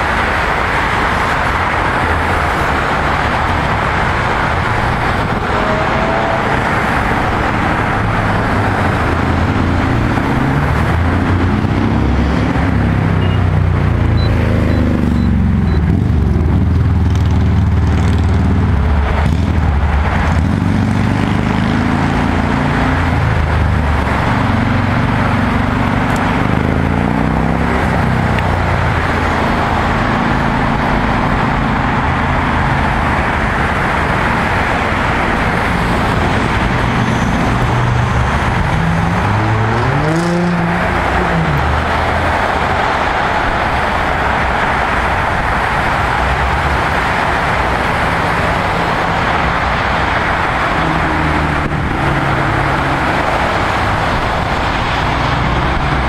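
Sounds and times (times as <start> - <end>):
engines of passing vehicles: 0.0 - 56.0
roar of tyres: 14.1 - 56.0.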